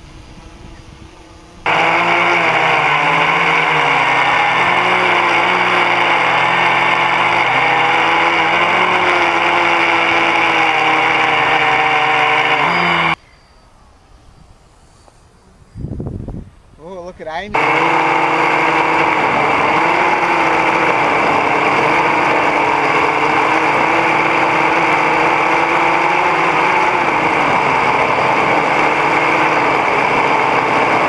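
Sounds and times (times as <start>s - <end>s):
quadcopter motors whining: 0.0s - 13.2s, 17.5s - 31.0s.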